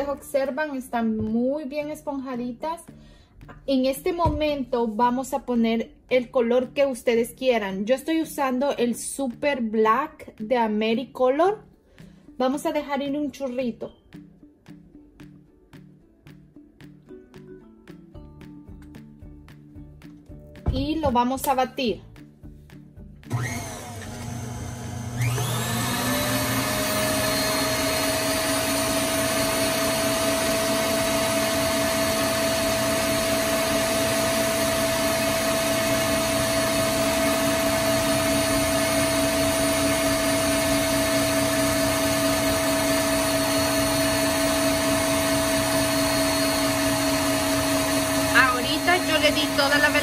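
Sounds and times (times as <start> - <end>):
stand mixer motor whining: 23.3 - 50.0.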